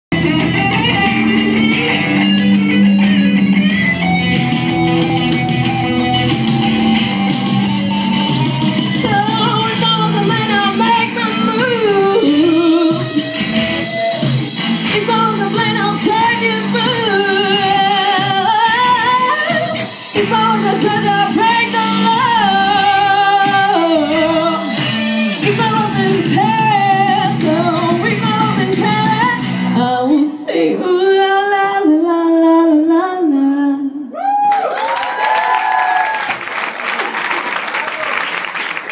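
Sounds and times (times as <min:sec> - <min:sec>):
backing music: 0:00.1 - 0:30.1
live band with electric guitar: 0:00.1 - 0:30.1
woman singing into microphone: 0:08.9 - 0:13.9, 0:14.8 - 0:34.2.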